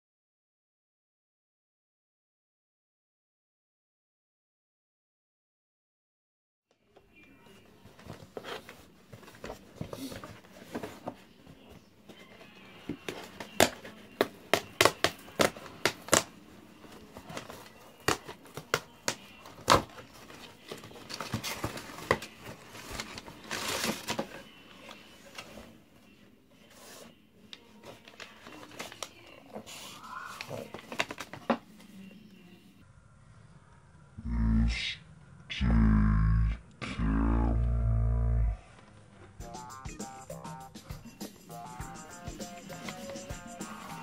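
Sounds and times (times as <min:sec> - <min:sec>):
paper packing crinkling: 0:16.9 - 0:25.8, 0:27.7 - 0:31.5.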